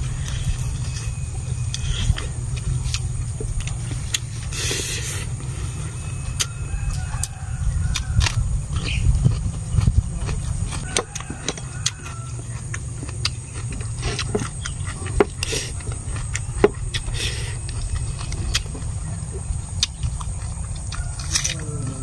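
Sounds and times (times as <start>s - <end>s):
chewing: 0.0s - 22.0s
low rumble: 0.0s - 22.0s.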